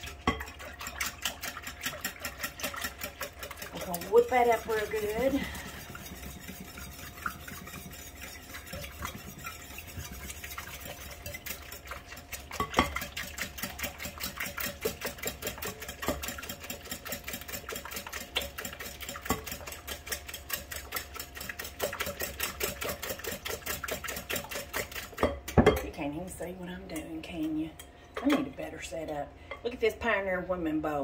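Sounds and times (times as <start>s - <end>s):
whisk clicking against bowl: 0.0s - 25.8s.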